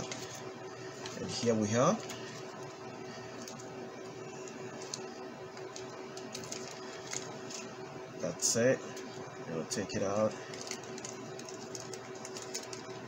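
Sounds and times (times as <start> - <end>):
steady low hum: 0.0 - 13.0
plastic packaging crinkling: 4.4 - 7.7, 10.2 - 13.0.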